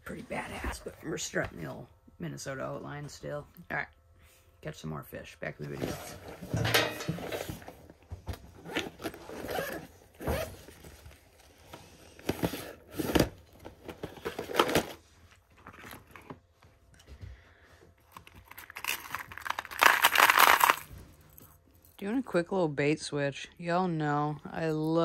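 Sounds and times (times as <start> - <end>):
rustling and scraping: 5.6 - 17.2
zipper pulled open on canvas bag: 8.6 - 10.8.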